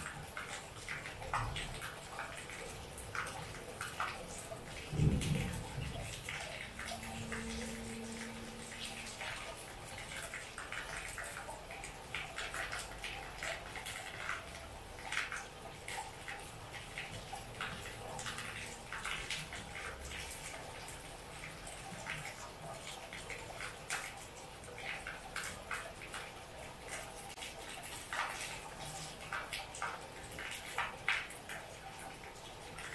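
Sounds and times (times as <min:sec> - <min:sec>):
heavy rain falling: 0:00.0 - 0:11.0
water drips splashing: 0:00.0 - 0:32.9.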